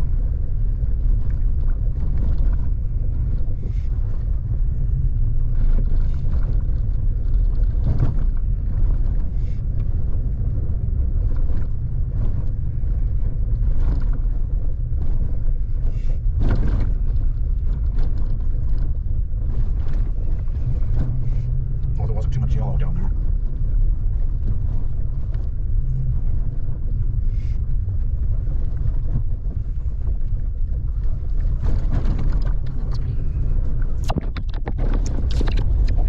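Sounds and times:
vehicle engine and road rumble: 0.0 - 36.0
vehicle knocks and rattles on bumps: 0.0 - 36.0
wind noise: 0.0 - 36.0.

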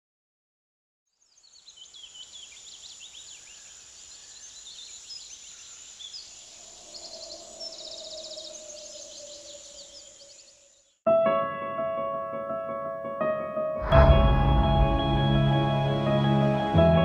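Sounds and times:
small birds chirping and singing: 1.1 - 11.0
bird trill: 1.3 - 10.9
low held musical note: 13.8 - 17.0.

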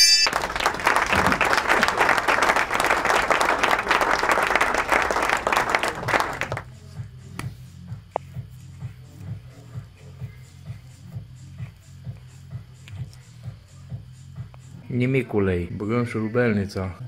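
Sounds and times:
applause: 0.2 - 6.7
low beat: 6.4 - 14.9.

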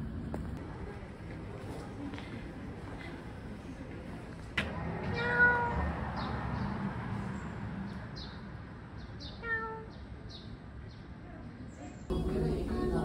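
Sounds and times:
cat meowing: 9.4 - 9.9.

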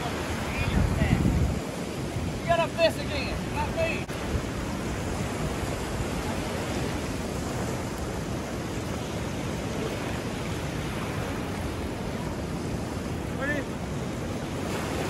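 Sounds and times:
waves washing onto shore: 0.0 - 15.0
wind buffeting microphone: 0.0 - 15.0.

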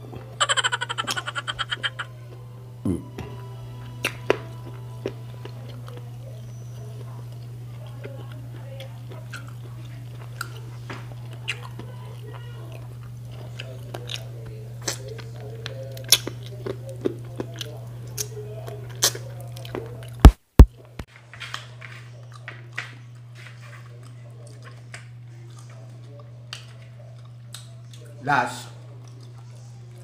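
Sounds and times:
chewing and lip-smacking: 0.0 - 2.4, 3.1 - 20.3, 22.1 - 28.2, 28.8 - 30.0
steady low hum: 0.0 - 21.0.

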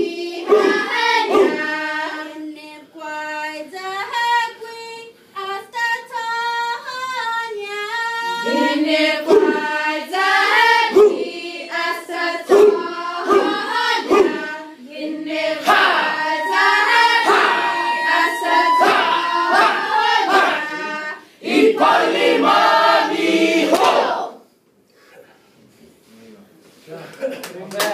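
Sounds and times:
women chanting in unison: 0.0 - 4.5, 6.8 - 24.4.

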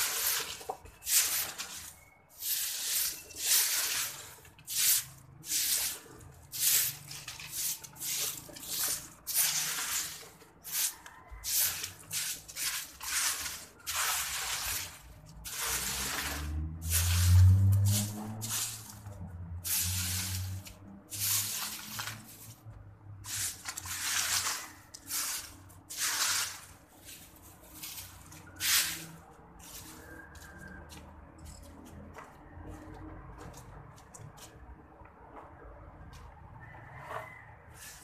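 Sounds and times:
broom swishing on concrete: 0.0 - 32.4, 37.7 - 38.0.

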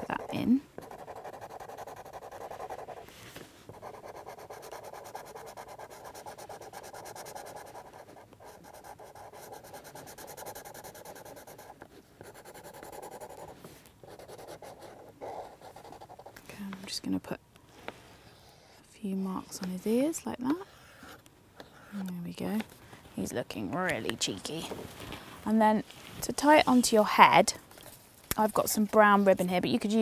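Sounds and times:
felt-tip pen scribbling on card: 0.0 - 3.0, 3.7 - 16.3.

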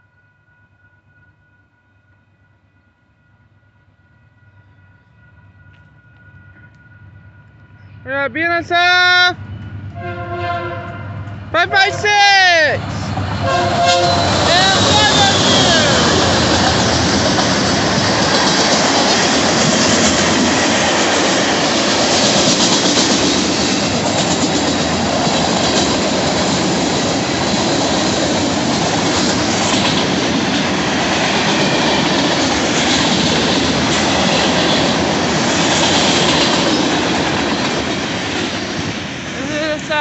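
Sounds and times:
freight train wheels rumbling: 4.8 - 40.0.

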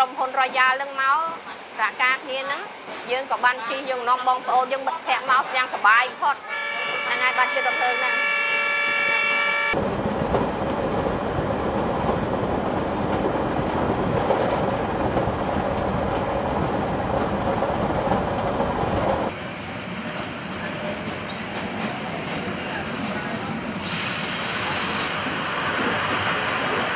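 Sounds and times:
train rumbling along track: 0.0 - 26.9
train horn: 6.5 - 9.8.

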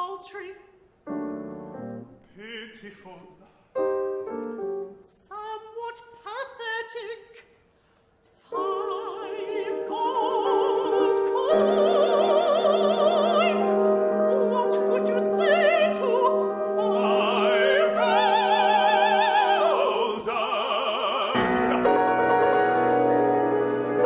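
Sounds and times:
operatic singing with vibrato: 5.1 - 7.5, 8.4 - 24.0.

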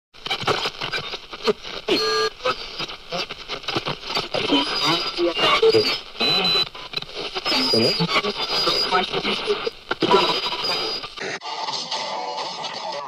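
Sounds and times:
clipped voice fragments: 7.3 - 13.0.

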